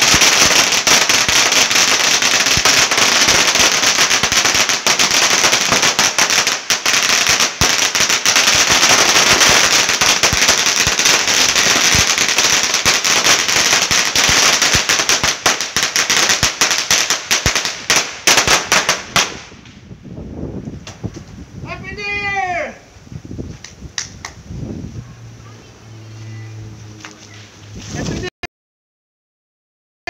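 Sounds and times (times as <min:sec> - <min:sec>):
firecrackers popping: 0:00.0 - 0:19.9, 0:23.4 - 0:24.5.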